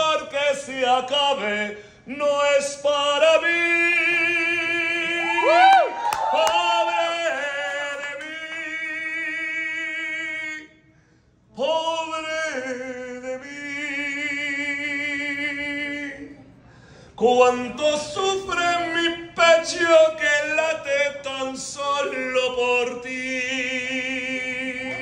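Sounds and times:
man singing unaccompanied: 0.0s - 5.3s, 6.4s - 10.8s, 11.5s - 16.4s, 17.2s - 25.0s.

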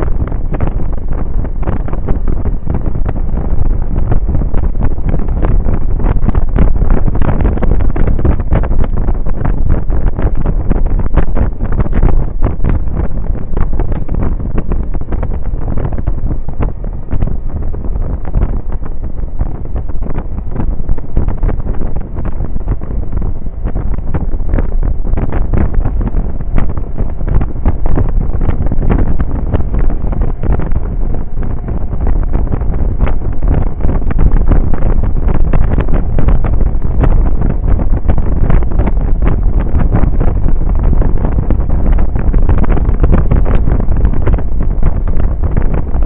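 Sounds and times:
wind buffeting microphone: 0.0s - 46.0s.

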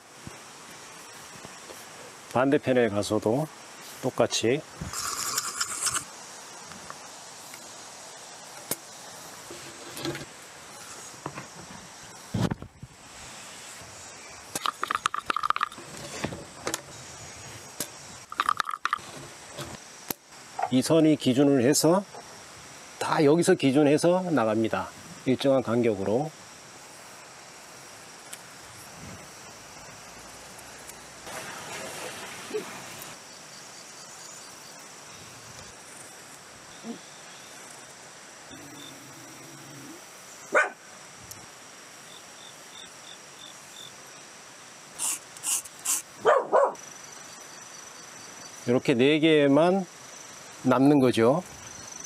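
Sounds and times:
insect chirring: 3.5s - 9.5s, 10.3s - 31.2s, 32.5s - 52.0s
reel clicking and scraping: 4.9s - 6.1s.

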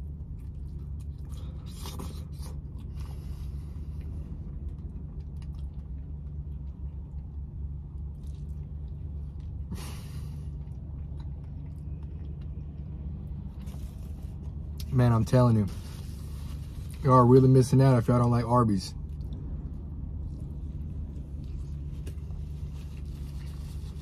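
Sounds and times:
person chewing a sandwich: 0.0s - 14.9s, 15.7s - 17.1s, 19.0s - 24.0s
low rumble: 18.9s - 24.0s.

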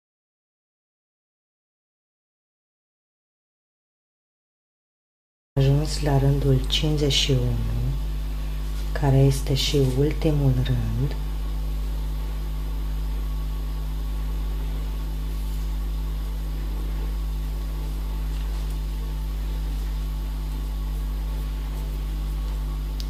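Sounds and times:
steady low hum with hiss: 5.6s - 23.0s.

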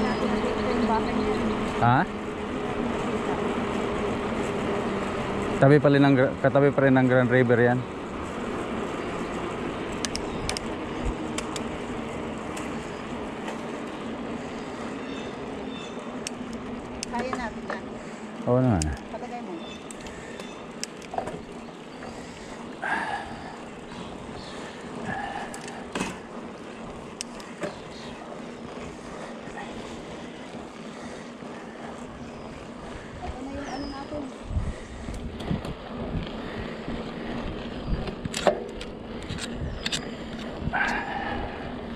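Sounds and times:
bicycle rushing along trail: 0.0s - 41.9s
bike clicks and rattles: 0.0s - 41.9s
sharp clicks: 10.0s - 10.7s, 11.3s - 11.7s, 38.0s - 40.5s
wind on microphone: 32.8s - 38.4s, 39.1s - 41.9s.

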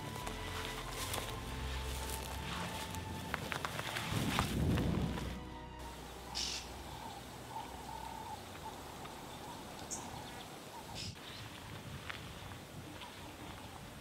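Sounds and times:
high-pitched bird chirps: 6.3s - 7.8s.

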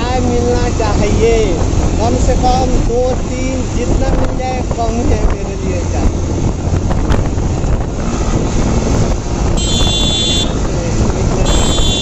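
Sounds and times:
motorcycle riding: 0.0s - 12.0s
wind buffeting microphone: 0.0s - 12.0s
high-pitched vehicle horn: 9.6s - 10.6s, 11.4s - 12.0s.

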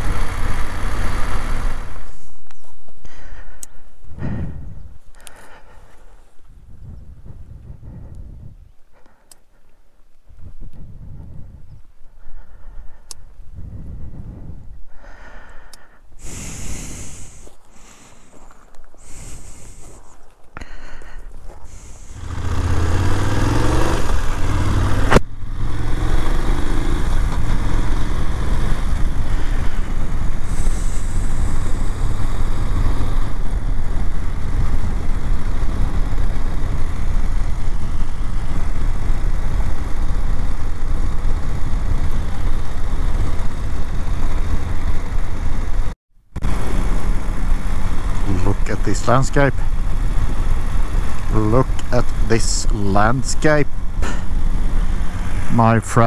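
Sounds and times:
motorcycle engine accelerating: 0.0s - 2.4s, 16.2s - 20.2s, 21.4s - 56.0s
wind noise: 3.8s - 8.9s, 10.2s - 15.6s, 16.2s - 25.2s
tyres on gravel: 16.2s - 23.6s.

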